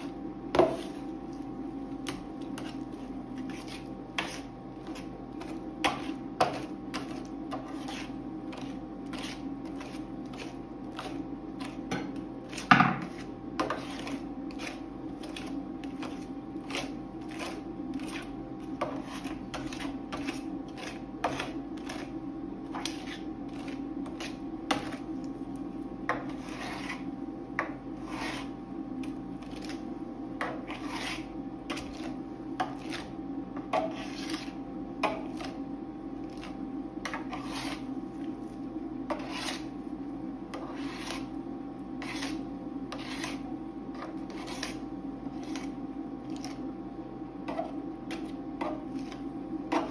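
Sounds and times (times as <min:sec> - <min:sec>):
steady low hum: 0:00.0 - 0:49.9
metal spatula scraping steel plate: 0:26.3 - 0:27.1, 0:33.8 - 0:34.6, 0:37.1 - 0:37.9, 0:39.1 - 0:39.7.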